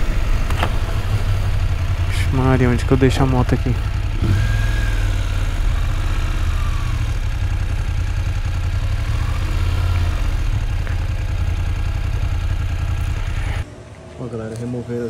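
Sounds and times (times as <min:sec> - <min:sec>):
motorcycle engine at low revs: 0:00.0 - 0:13.7.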